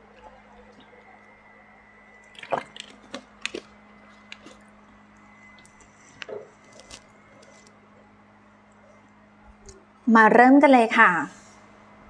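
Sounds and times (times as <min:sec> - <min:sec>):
person gulping water: 0:02.2 - 0:04.7.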